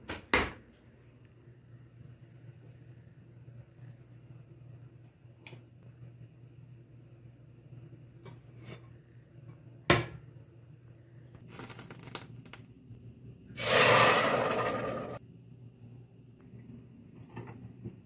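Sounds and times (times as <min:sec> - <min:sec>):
rice grains pouring into pot: 0:13.6 - 0:15.2.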